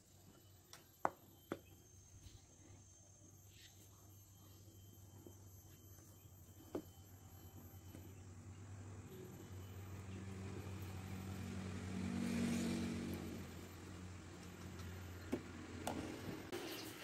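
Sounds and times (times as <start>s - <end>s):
steady low hum: 0.0s - 12.1s
motor vehicle passing: 8.4s - 16.6s.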